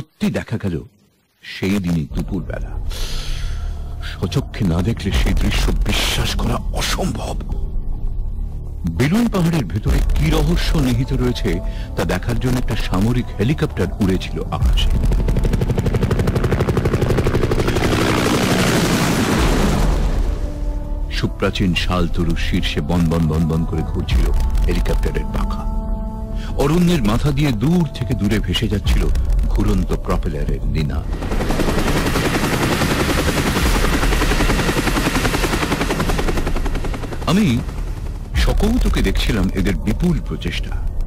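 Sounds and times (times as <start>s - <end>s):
helicopter rotor chop: 14.6s - 20.9s, 31.0s - 39.4s.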